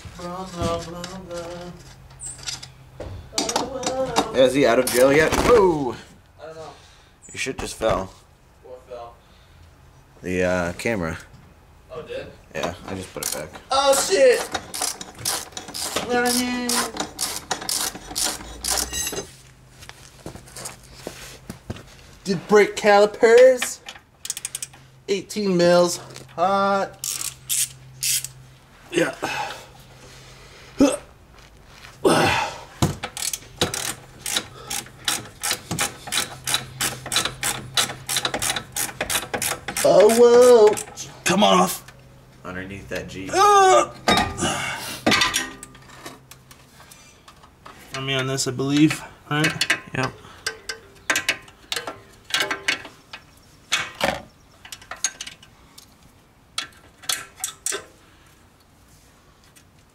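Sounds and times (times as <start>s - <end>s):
ratchet wrench clicking: 14.4s - 19.0s, 23.6s - 24.8s, 27.0s - 28.4s, 33.1s - 40.9s.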